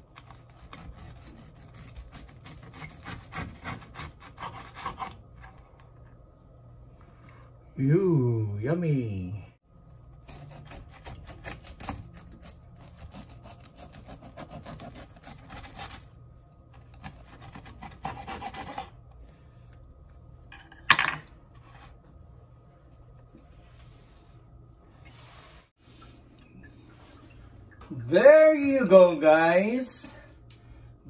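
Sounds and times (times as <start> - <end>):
knife sawing through crispy crust: 0.2 - 5.3, 10.1 - 19.0.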